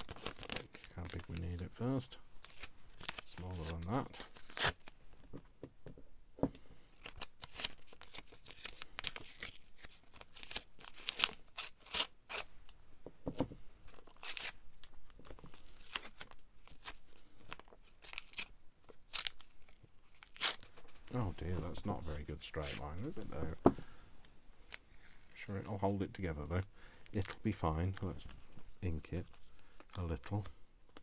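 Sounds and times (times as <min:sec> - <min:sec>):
paper crackling: 0:00.0 - 0:05.0.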